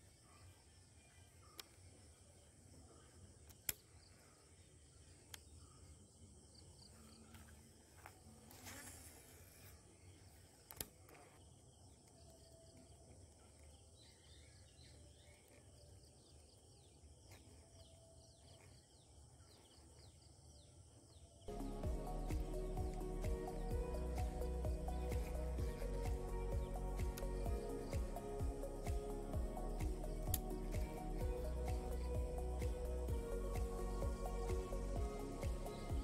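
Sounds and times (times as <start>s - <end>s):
faint high chirps: 21.4s - 36.0s.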